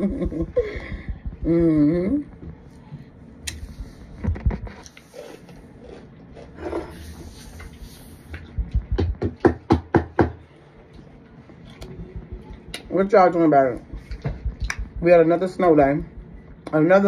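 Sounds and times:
person chewing cornstarch: 0:04.7 - 0:07.0.

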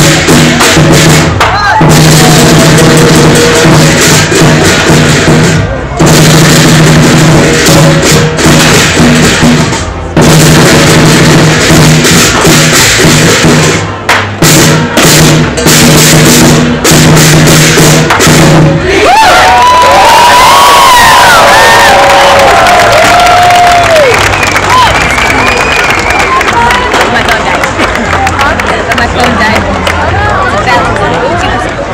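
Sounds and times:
drums gongs and cymbals beating: 0:00.0 - 0:26.5
crowd cheering and whooping: 0:19.0 - 0:26.8.

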